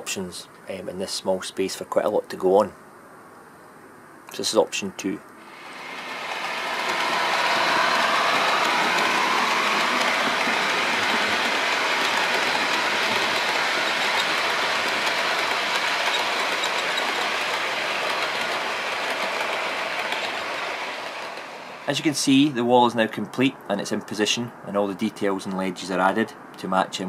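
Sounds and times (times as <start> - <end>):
model train rolling on rails: 5.4 - 22.3.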